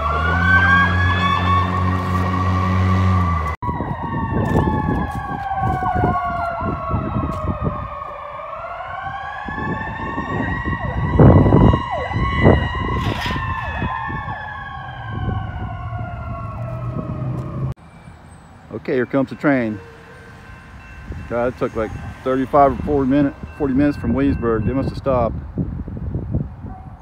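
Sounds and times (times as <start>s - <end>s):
ambulance siren wailing: 0.0s - 25.4s.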